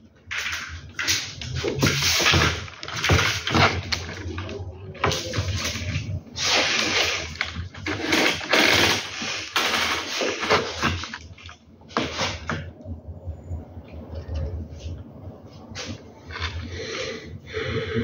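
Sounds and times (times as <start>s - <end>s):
rustling and scraping: 0.3s - 12.8s, 14.1s - 16.8s.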